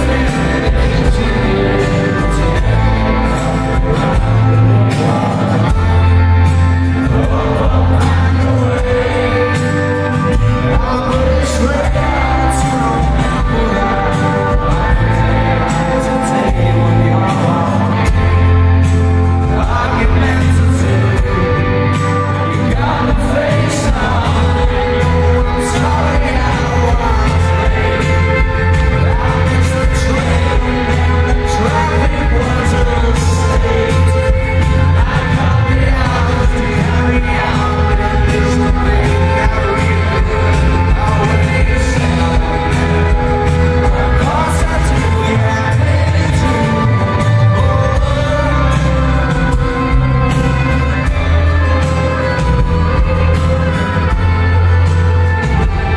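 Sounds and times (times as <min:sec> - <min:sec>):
drums: 0:00.0 - 0:55.9
heavy bass: 0:00.0 - 0:55.9
male lead vocal: 0:00.0 - 0:55.9
strummed acoustic guitar: 0:00.0 - 0:55.9.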